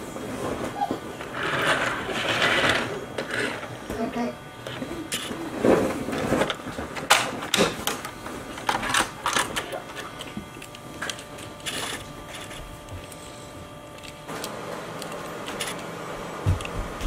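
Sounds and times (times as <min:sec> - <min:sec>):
plastic toy clicks and rattles: 0:06.4 - 0:12.6.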